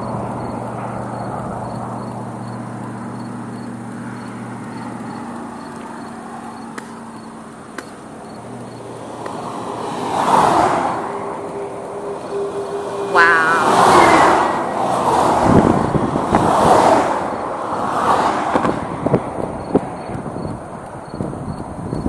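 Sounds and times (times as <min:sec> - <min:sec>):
vehicle engine humming: 0:00.0 - 0:22.0
vehicle passing: 0:00.0 - 0:22.0.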